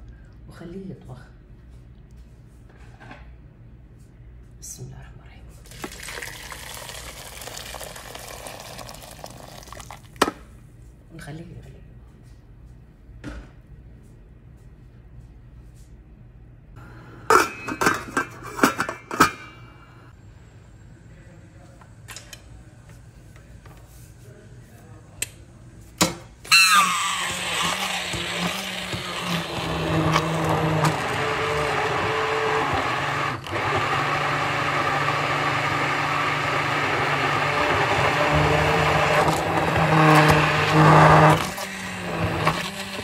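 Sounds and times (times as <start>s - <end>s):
stick blender churning soup: 5.7s - 10.2s, 26.5s - 43.0s.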